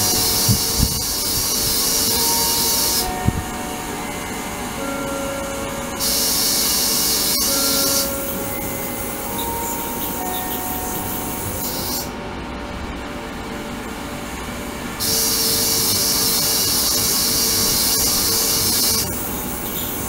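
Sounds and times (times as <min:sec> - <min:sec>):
ultrasonic cleaner water hissing: 0:00.0 - 0:03.2, 0:06.0 - 0:10.3, 0:15.0 - 0:20.0
loud high hiss: 0:00.0 - 0:12.3, 0:15.0 - 0:20.0.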